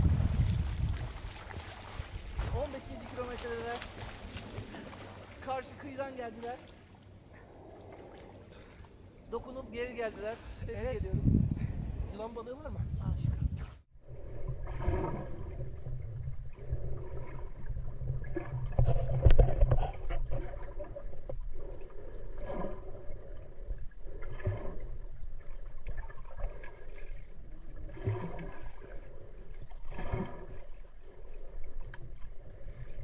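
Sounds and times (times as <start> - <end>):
steady low rumble: 0.0 - 5.4
water splashing around swimmer: 0.0 - 7.2.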